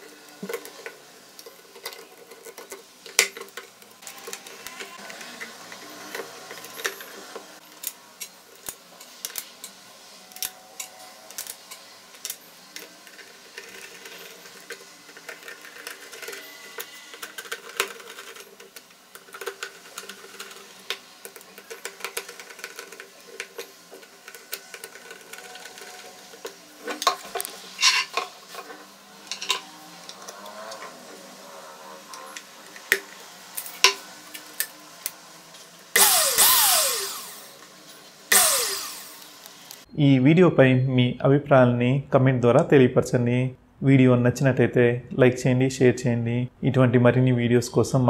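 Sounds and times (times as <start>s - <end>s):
plastic parts clicking and knocking: 12.2s - 27.5s.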